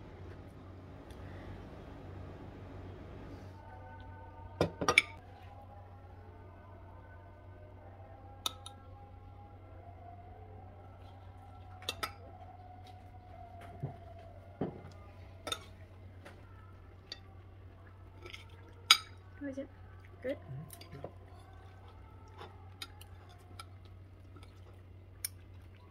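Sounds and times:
cutlery clinking on a ceramic plate: 0:04.6 - 0:05.2, 0:18.9 - 0:19.2.

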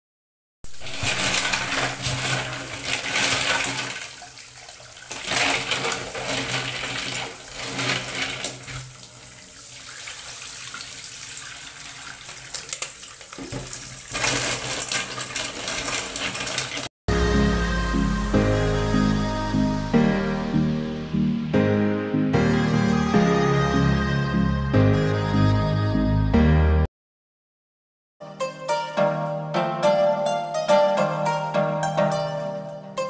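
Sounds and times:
tap water running into basin: 0:00.7 - 0:16.9.

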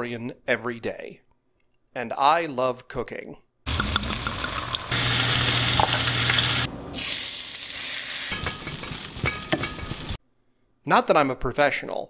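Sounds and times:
food sizzling in a pan: 0:03.7 - 0:10.2.

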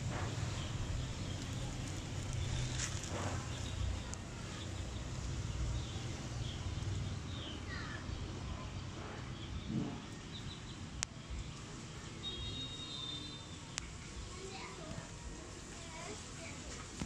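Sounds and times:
faint bird chirps: 0:12.2 - 0:14.0.

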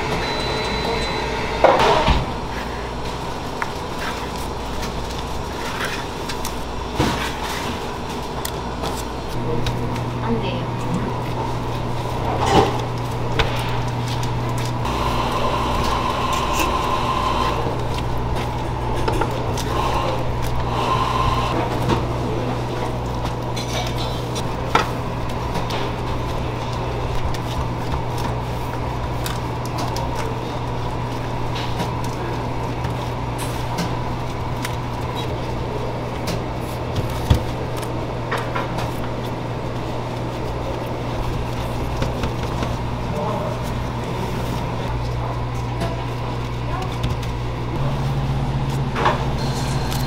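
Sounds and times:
low machine hum: 0:00.0 - 0:50.0.

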